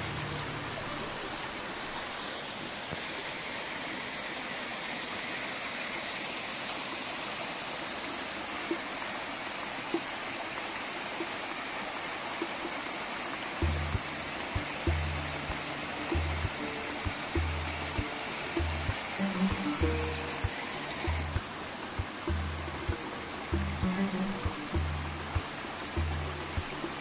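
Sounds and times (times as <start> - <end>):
stream water splashing: 0.0 - 27.0
low background music: 13.6 - 27.0.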